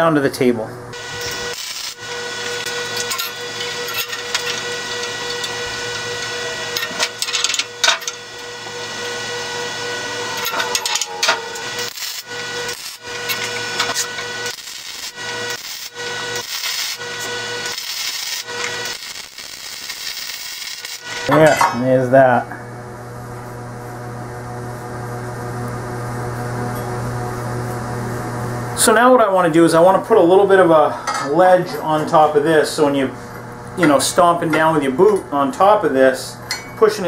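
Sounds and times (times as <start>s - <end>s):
welder arc crackling and hissing: 0.9s - 22.4s.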